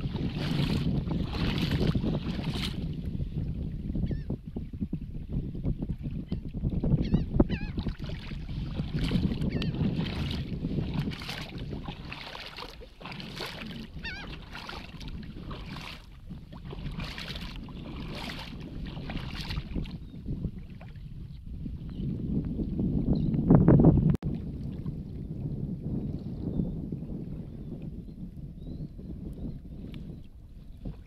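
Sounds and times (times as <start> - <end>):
water splashing at hull: 0.0 - 3.7, 5.6 - 21.4, 24.0 - 26.2
wind on microphone: 0.0 - 31.0
boat engine rumble: 8.4 - 21.5
birds warbling: 14.0 - 14.3.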